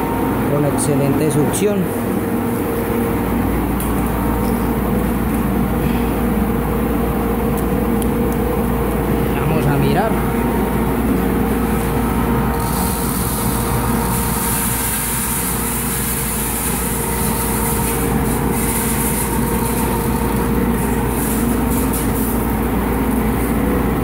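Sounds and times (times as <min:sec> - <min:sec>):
machine hum with steady tone: 0:00.0 - 0:24.0
rushing air hiss: 0:12.6 - 0:17.0.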